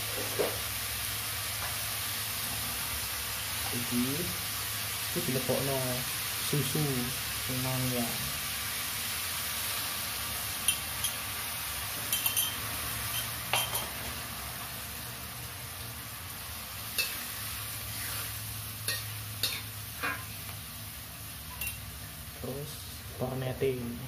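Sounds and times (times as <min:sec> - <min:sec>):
vegetables sizzling: 0:00.0 - 0:24.0
spoon clinking against pan: 0:10.7 - 0:11.2, 0:12.1 - 0:13.9, 0:17.0 - 0:17.2, 0:18.9 - 0:20.2, 0:21.5 - 0:21.8
metal spoon scraping wok: 0:16.9 - 0:17.3, 0:17.9 - 0:20.3.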